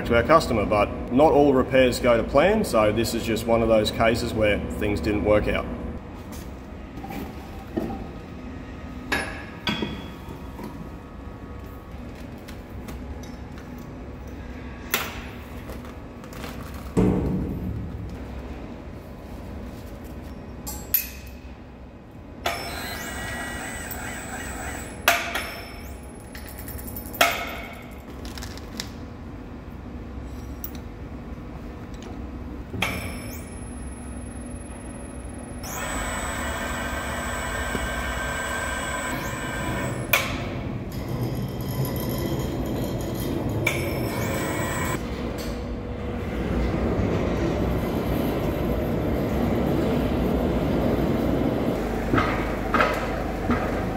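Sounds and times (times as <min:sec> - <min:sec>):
machine running: 0:22.4 - 0:26.5, 0:33.3 - 0:45.0.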